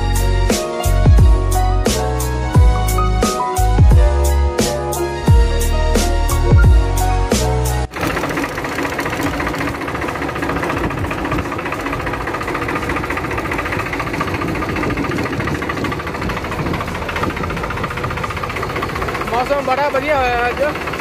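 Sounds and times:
background music: 0.0s - 7.9s
tractor diesel engine running: 0.0s - 21.0s.

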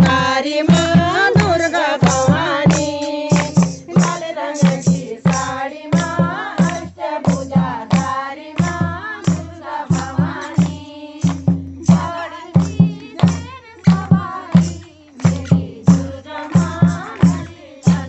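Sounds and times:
barrel drum beat: 0.0s - 18.0s
women singing in unison: 0.0s - 18.0s
hands clapping: 1.4s - 3.8s, 4.6s - 8.8s.

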